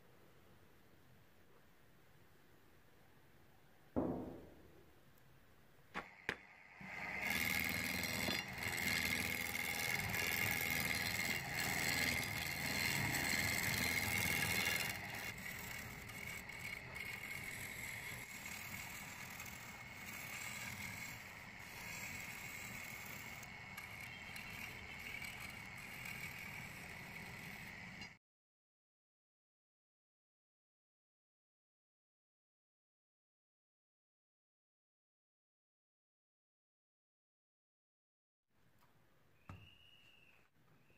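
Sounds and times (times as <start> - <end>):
knocks: 4.0 - 4.7
chisel cutting wood on a lathe: 6.0 - 28.2.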